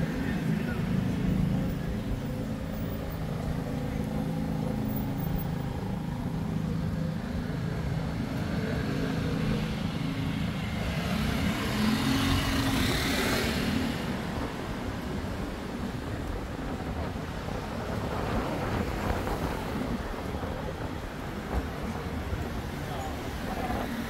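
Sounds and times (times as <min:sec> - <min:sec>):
vehicle engines running: 0:00.0 - 0:24.0.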